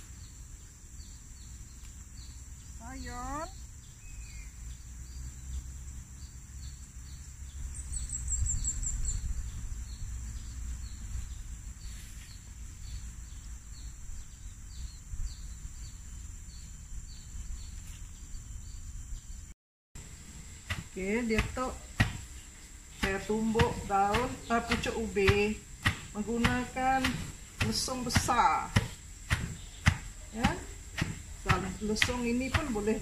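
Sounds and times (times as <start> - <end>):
insect chirp: 0.0 - 33.0
insects whining: 0.0 - 33.0.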